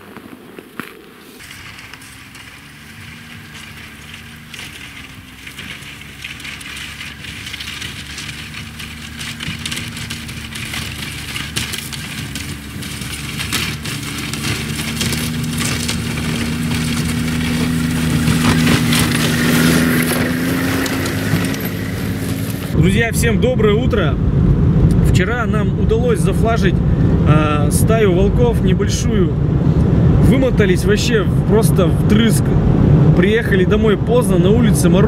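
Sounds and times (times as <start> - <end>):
crackling noise: 0.0 - 26.6
vehicle engine running: 0.0 - 35.0.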